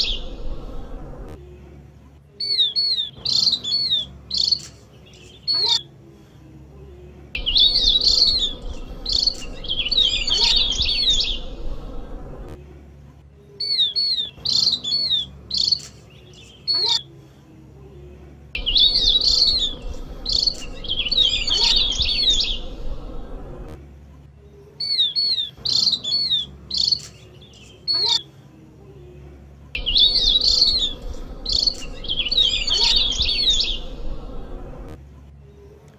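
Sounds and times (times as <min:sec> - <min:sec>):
bird chirps: 0:00.0 - 0:01.0, 0:02.4 - 0:05.9, 0:07.4 - 0:12.5, 0:13.6 - 0:17.1, 0:18.6 - 0:23.7, 0:24.8 - 0:28.2, 0:29.8 - 0:34.9
bird twittering song: 0:00.0 - 0:01.2, 0:02.4 - 0:05.9, 0:07.4 - 0:12.5, 0:13.5 - 0:17.1, 0:18.6 - 0:23.7, 0:24.8 - 0:28.2, 0:29.8 - 0:34.9.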